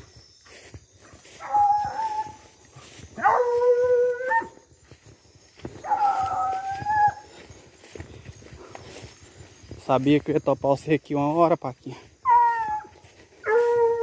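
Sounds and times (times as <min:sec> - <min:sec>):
hound baying howls: 0:01.1 - 0:04.7, 0:05.8 - 0:07.5, 0:12.2 - 0:14.0.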